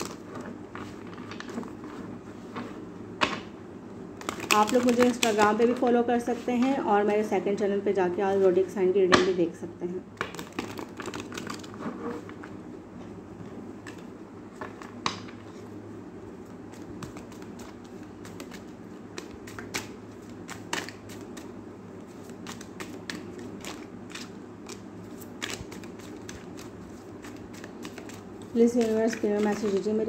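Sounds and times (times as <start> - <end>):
low steady hum: 0.0 - 30.0
cards shuffling: 4.2 - 6.7, 16.7 - 30.0.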